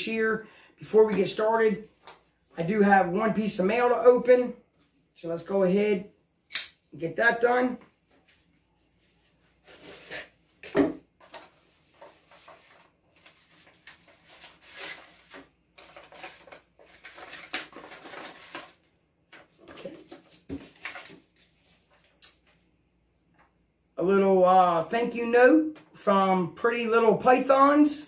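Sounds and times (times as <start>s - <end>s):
paper rustling and crinkling: 7.9s - 22.6s.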